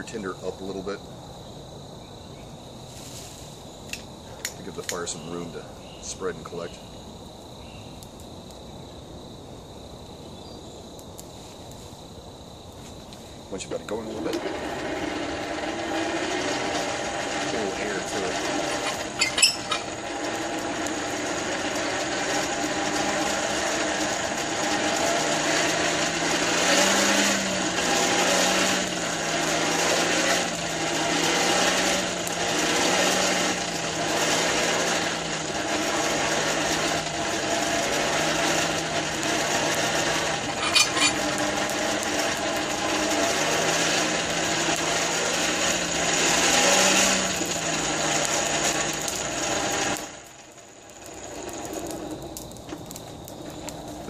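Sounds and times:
blower clicks: 3.9 - 5.1, 13.8 - 26.1
hand-cranked blower whirring: 13.5 - 54.0.

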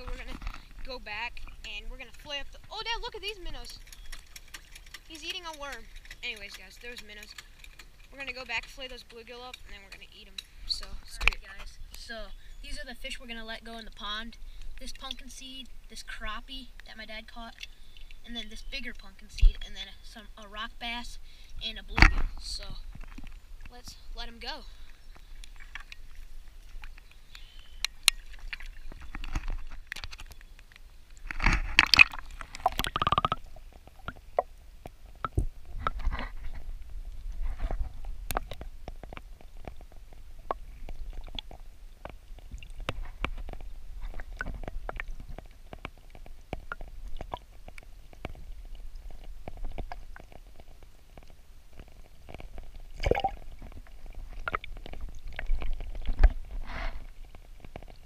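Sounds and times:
underwater clicks and knocks: 0.0 - 11.7, 21.8 - 23.8, 25.1 - 58.0
rush of water: 21.6 - 58.0
underwater rumble and gurgling: 21.6 - 58.0.

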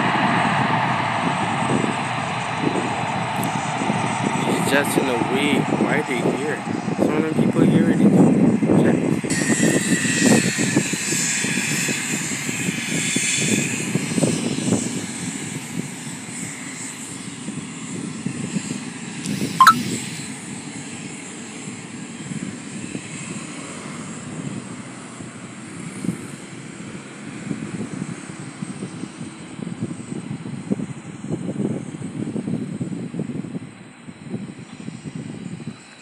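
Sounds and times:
sharp falling chirp: 19.6 - 19.8.

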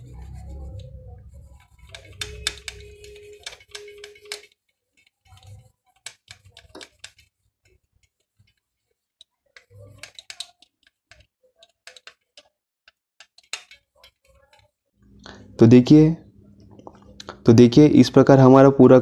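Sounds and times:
cotton rubbing on circuit board: 0.0 - 15.0.

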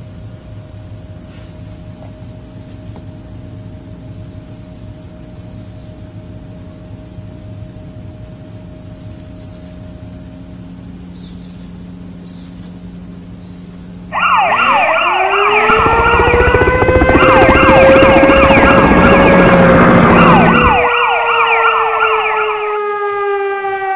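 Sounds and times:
faint steady hum: 0.0 - 21.0
heavy rumble: 14.1 - 20.9
siren wail: 14.1 - 23.9
siren yelp: 14.1 - 23.9.

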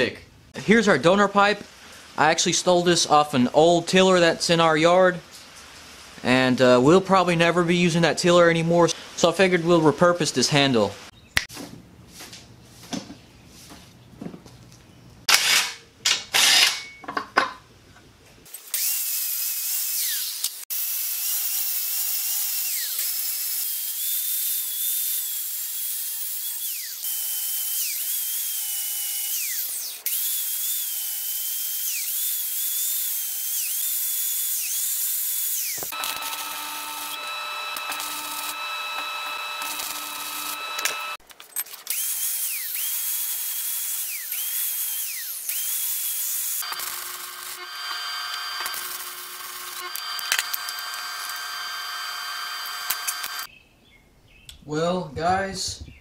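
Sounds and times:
angle grinder cutting steel pipe: 18.6 - 41.2, 41.9 - 53.5.

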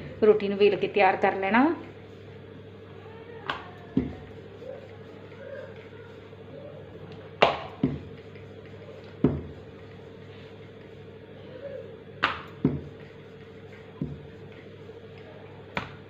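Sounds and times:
steady hum: 0.0 - 16.0
rolling pin knocking on countertop: 3.5 - 4.2, 7.4 - 8.1, 9.2 - 9.5, 12.2 - 13.0, 14.0 - 14.3.

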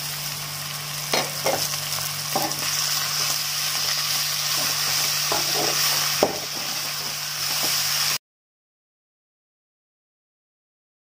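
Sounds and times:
food sizzling in oil: 0.0 - 8.2.

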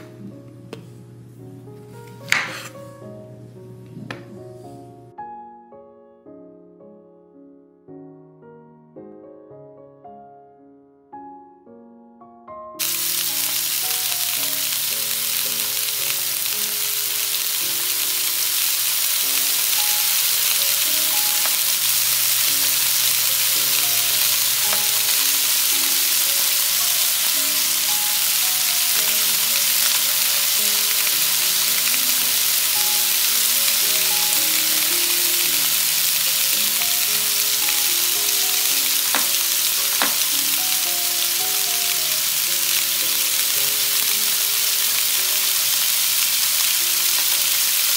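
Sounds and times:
light background music: 0.0 - 47.9
steaks sizzling on a griddle: 12.8 - 47.9.

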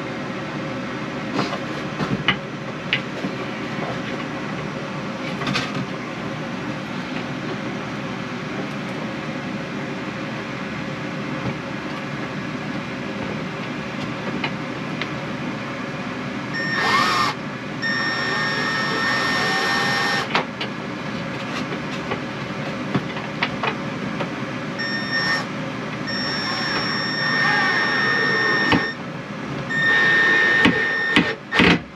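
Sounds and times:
steady background hum: 0.0 - 31.9
power drill whining: 16.6 - 20.3, 24.8 - 25.5, 26.1 - 29.0, 29.7 - 31.7.

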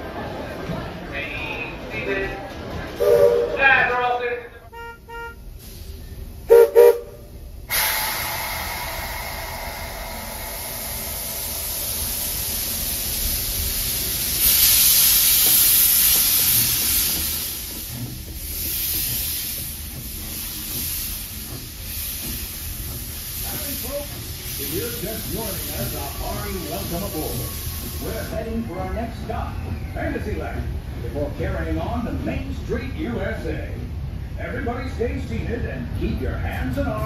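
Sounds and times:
steam whistle toots: 3.0 - 3.6, 6.5 - 8.4
steam hissing: 5.5 - 30.4.

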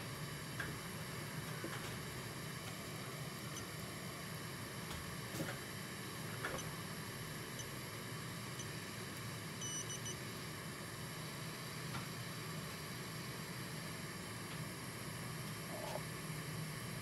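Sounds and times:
equipment hiss and hum: 0.0 - 17.0
short electronic beeps: 9.6 - 10.2.

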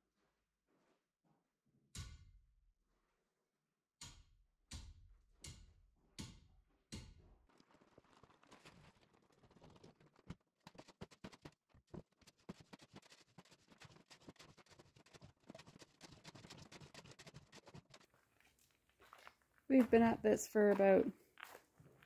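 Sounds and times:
hand tools scraping dirt: 12.2 - 18.6.

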